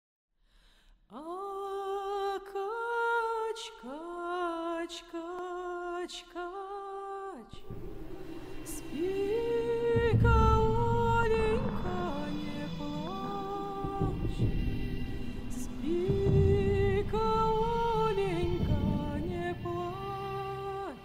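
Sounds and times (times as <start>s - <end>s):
woman singing a lullaby: 1.1s - 21.0s
low drone with hiss: 7.6s - 21.0s.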